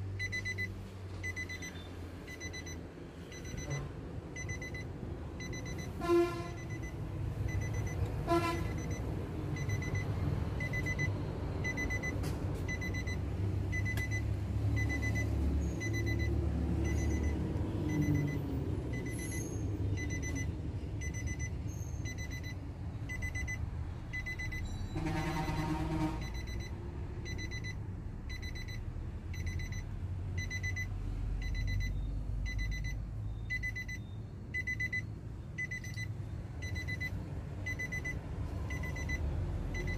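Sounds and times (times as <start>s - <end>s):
car warning chime beeping: 0.2s - 39.9s
horn-like toots: 25.0s - 26.4s.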